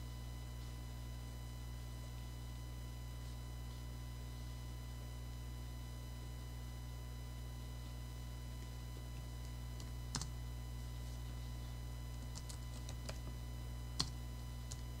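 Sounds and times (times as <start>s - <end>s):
steady electrical hum: 0.0s - 15.0s
keyboard and mouse clicks: 12.2s - 13.4s.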